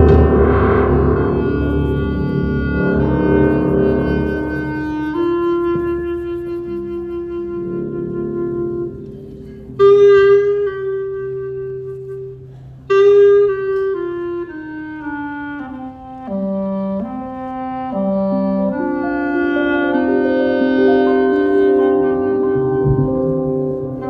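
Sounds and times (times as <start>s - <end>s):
instrumental music with held notes: 0.0s - 24.0s.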